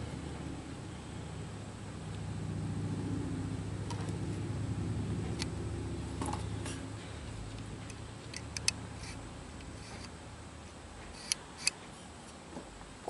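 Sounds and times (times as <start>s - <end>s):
small metallic clicks: 7.6s - 10.1s.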